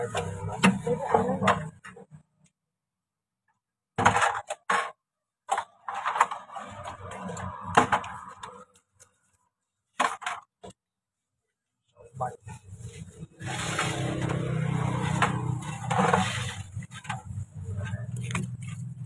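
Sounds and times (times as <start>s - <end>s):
plastic bags rustling: 12.6s - 19.0s
objects clicking and clattering: 13.4s - 19.0s.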